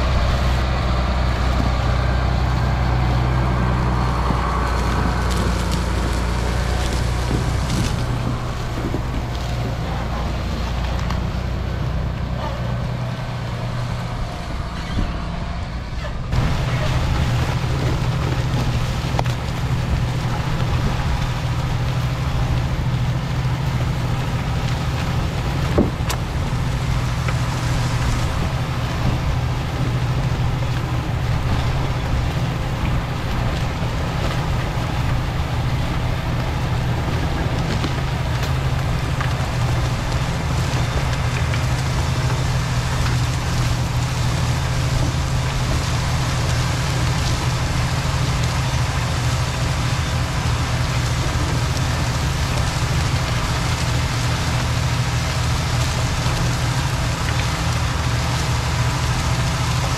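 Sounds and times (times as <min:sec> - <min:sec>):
crackling noisy hiss: 0:00.0 - 0:15.1, 0:15.9 - 0:59.9
tractor engine drone: 0:00.0 - 0:59.9.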